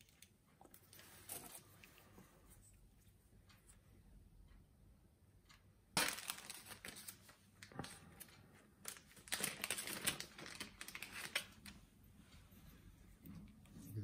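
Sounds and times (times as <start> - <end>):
plastic bag crinkling: 6.0 - 7.8, 8.8 - 11.7.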